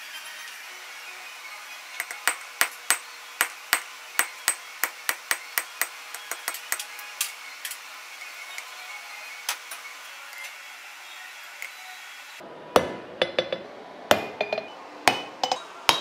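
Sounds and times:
hammer striking steel on anvil: 2.0s - 6.9s, 12.7s - 16.0s.

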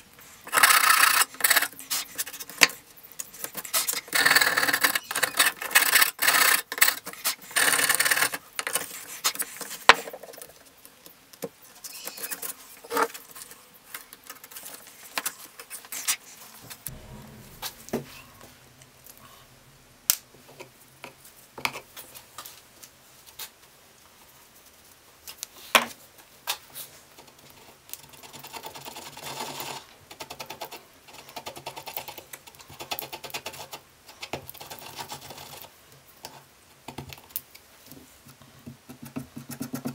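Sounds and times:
faint low hum: 16.5s - 23.4s.

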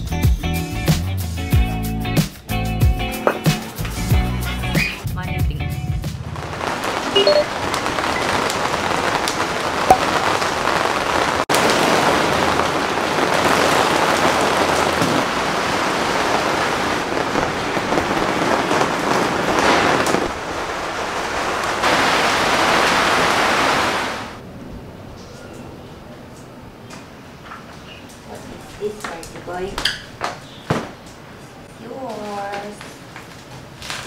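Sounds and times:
rain on fabric awning: 6.0s - 24.5s, 27.0s - 34.0s.

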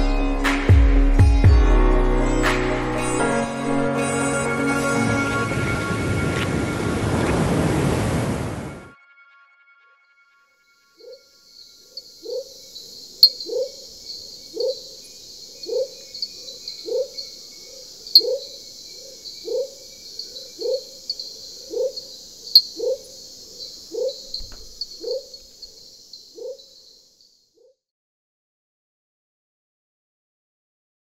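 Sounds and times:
high buzzing insect chorus: 11.0s - 27.5s
low animal call: 13.2s - 25.8s.

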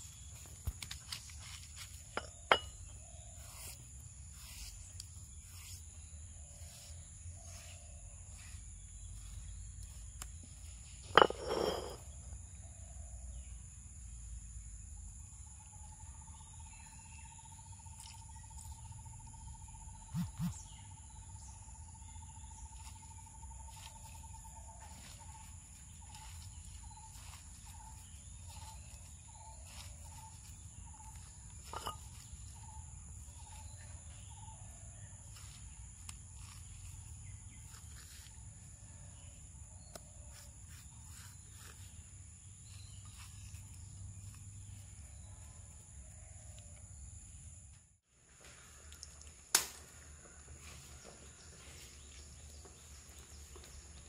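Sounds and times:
insects droning: 0.0s - 54.0s
stone roller knocking on stone: 11.1s - 12.0s.

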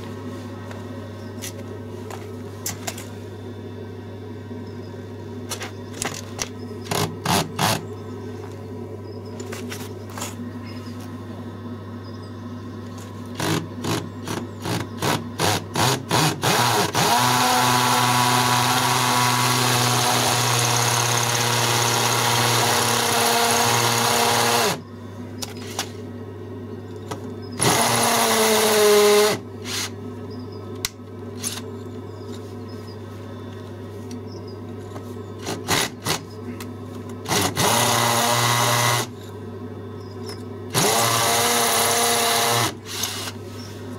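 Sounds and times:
power drill boring into wall: 13.4s - 24.8s, 27.6s - 29.9s, 37.3s - 39.1s, 40.7s - 43.4s.

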